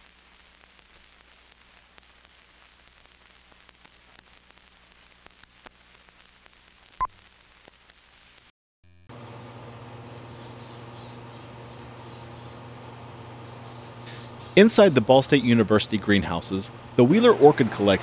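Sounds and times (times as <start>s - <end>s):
faint steady hiss: 0.0s - 8.5s.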